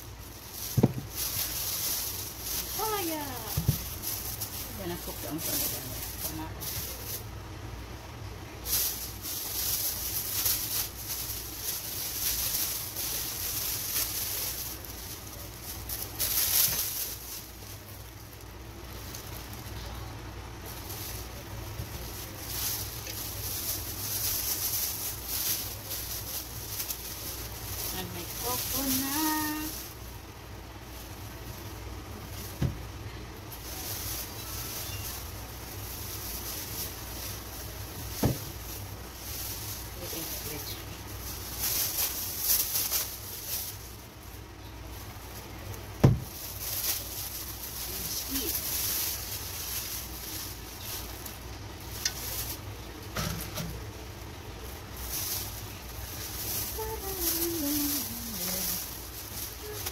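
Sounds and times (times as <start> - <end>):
plastic bag rustling: 0.0 - 59.9
steady low hum: 0.0 - 59.9.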